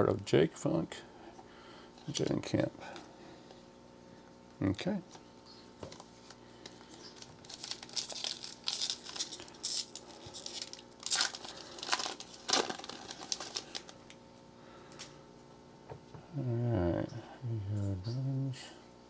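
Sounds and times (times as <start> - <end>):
foil wrapper crinkling and tearing: 6.0 - 14.2.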